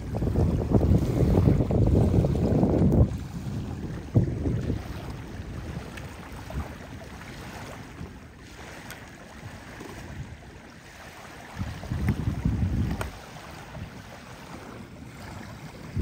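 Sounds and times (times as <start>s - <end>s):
small waves lapping at shore: 0.0s - 16.0s
wind buffeting microphone: 0.0s - 16.0s.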